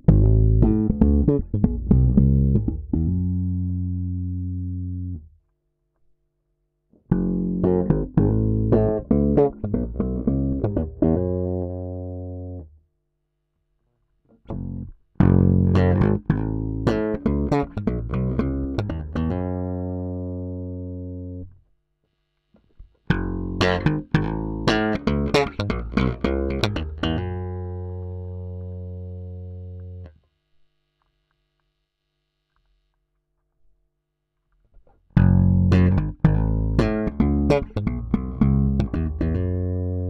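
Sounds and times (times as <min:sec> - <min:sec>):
electric bass plucked notes: 0:00.0 - 0:05.4, 0:07.0 - 0:12.8, 0:14.4 - 0:21.6, 0:23.0 - 0:30.2, 0:35.0 - 0:40.0.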